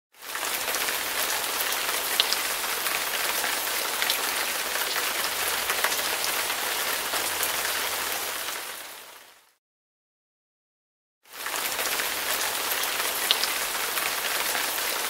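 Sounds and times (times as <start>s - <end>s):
steady rain: 0.2s - 9.6s, 11.3s - 15.0s.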